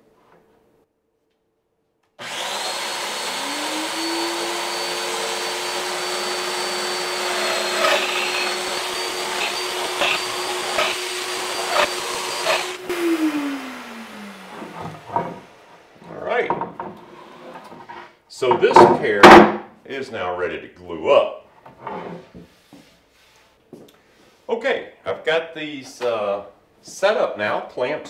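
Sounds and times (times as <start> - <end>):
power joiner high whine: 2.2 - 16.0
dust extractor humming: 2.2 - 16.4.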